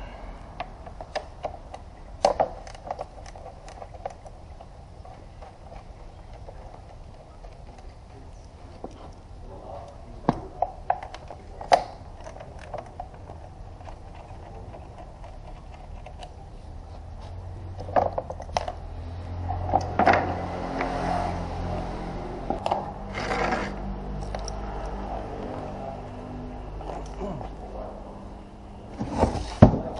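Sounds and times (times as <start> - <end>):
low steady hum: 0.0 - 29.9
plastic and metal parts clicking: 0.6 - 9.2, 10.6 - 16.4
parts scraping on concrete: 12.2 - 25.0, 28.9 - 29.8.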